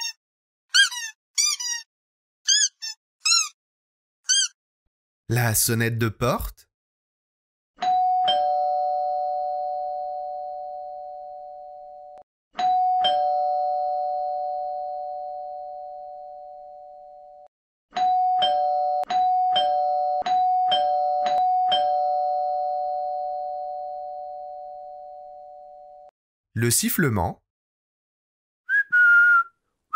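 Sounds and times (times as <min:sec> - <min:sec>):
two-tone doorbell chime: 0:07.8 - 0:17.4, 0:18.0 - 0:26.1.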